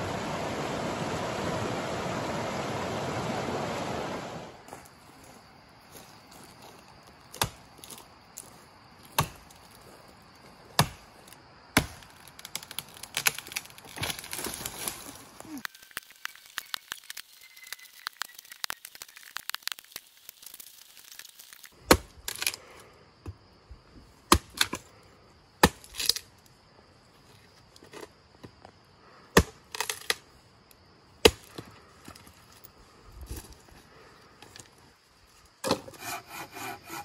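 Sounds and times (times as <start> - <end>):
twigs crackling and snapping: 5.9 - 10.0, 10.6 - 22.7, 25.6 - 26.5
hatchet chopping wood: 7.3 - 9.6, 10.7 - 11.1, 11.8 - 14.3, 21.8 - 22.6, 24.3 - 24.8, 25.6 - 26.2, 29.4 - 30.2, 31.2 - 31.6.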